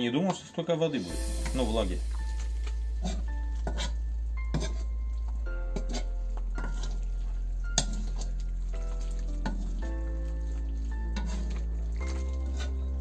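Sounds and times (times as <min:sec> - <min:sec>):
background music with held chords: 0:00.0 - 0:13.0
metal ladle scraping a pot: 0:02.3 - 0:05.0, 0:05.7 - 0:07.1, 0:07.8 - 0:08.4, 0:09.0 - 0:09.9, 0:11.0 - 0:13.0.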